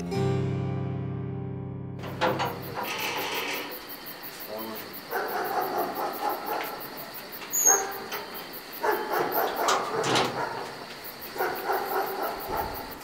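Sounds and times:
dog barking: 5.1 - 8.2, 8.8 - 13.0.

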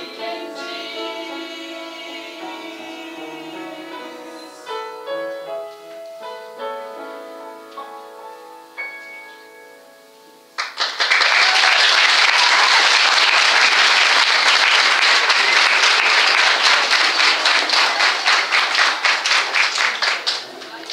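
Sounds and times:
audience applauding: 10.6 - 20.9.

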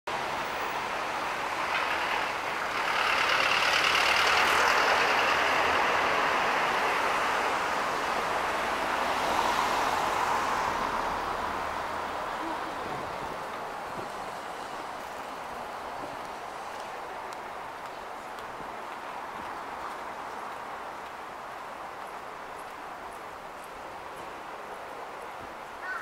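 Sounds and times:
vehicle passing: 0.2 - 20.4.

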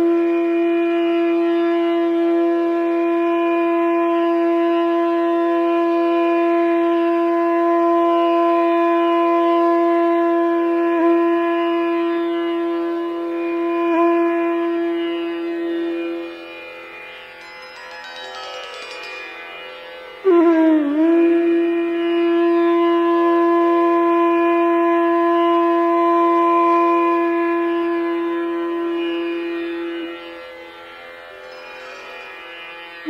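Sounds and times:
long wind instrument note: 0.0 - 17.0, 18.3 - 30.4.

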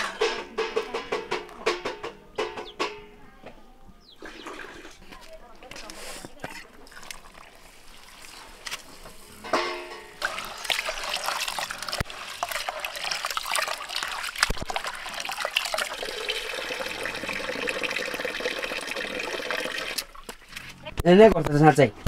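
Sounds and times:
knocks against a metal pot: 0.0 - 3.1, 9.5 - 10.2
water splashing and sloshing: 6.4 - 17.3, 19.7 - 20.8
tap water running into a pot: 10.2 - 20.4
water pouring into a bucket: 10.2 - 20.5.

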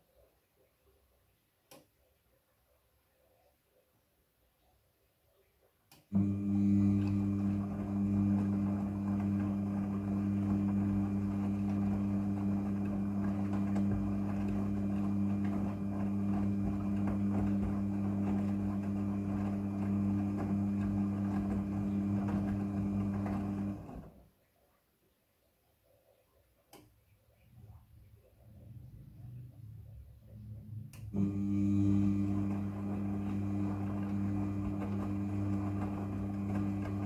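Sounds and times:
washing machine running: 6.2 - 24.2, 28.6 - 37.0.

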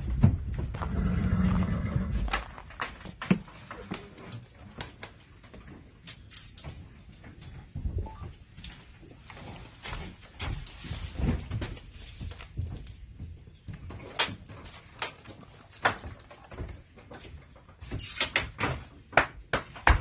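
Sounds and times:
footsteps on trailer floor: 0.0 - 18.1.

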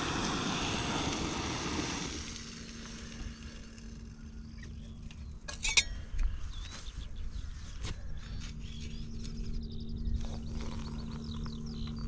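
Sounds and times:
sharp clink: 5.5 - 6.0.

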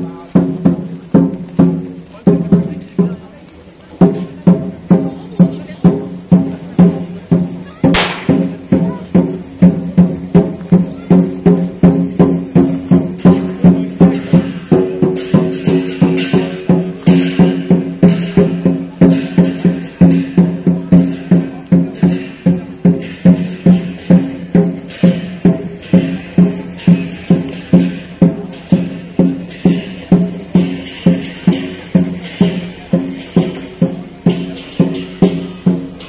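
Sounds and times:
drum beaten in a steady beat: 0.0 - 36.0
cymbal crashes: 7.9 - 8.8, 13.0 - 36.0.

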